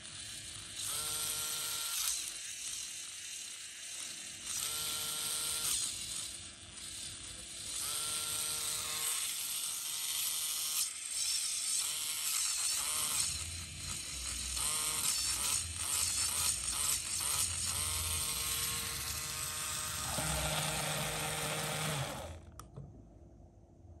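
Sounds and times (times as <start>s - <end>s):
electric motor whirr: 0.0s - 22.6s
gear whine: 18.3s - 22.6s.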